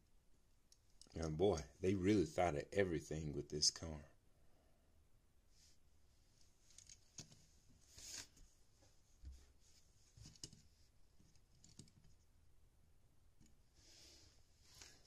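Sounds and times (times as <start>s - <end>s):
soft rustle: 5.5s - 11.6s, 13.6s - 15.0s.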